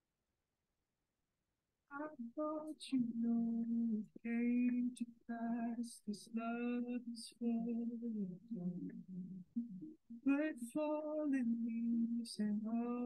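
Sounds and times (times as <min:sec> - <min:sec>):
solo voice singing long notes: 0:01.9 - 0:13.0.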